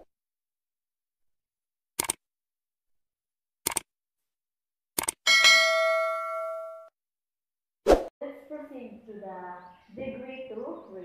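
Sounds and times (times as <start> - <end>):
notification bell ding: 5.3 - 6.9.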